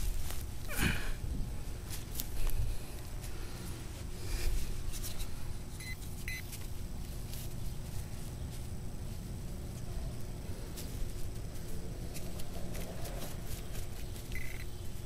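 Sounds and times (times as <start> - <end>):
short electronic beeps: 5.8 - 6.4, 14.3 - 14.7.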